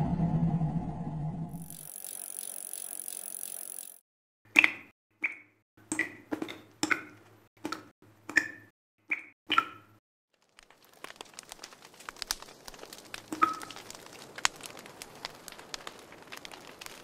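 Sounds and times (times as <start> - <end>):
low hum: 0.0 - 1.9
sharp electronic clicks: 1.6 - 4.0.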